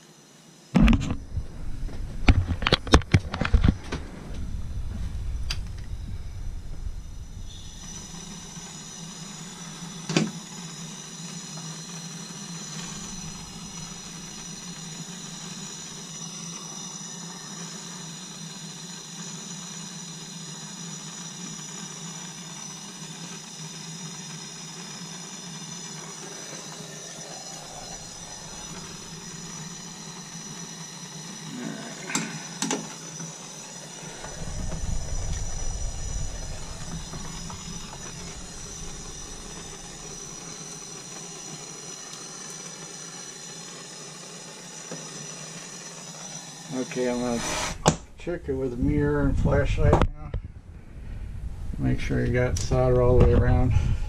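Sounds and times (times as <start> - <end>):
soldering torch hissing: 0.0 - 49.9.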